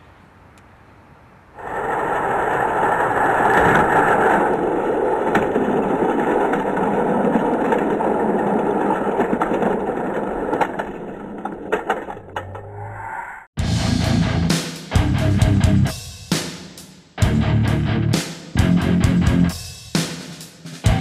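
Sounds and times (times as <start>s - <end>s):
toy cars rolling on plastic track: 1.6s - 12.4s.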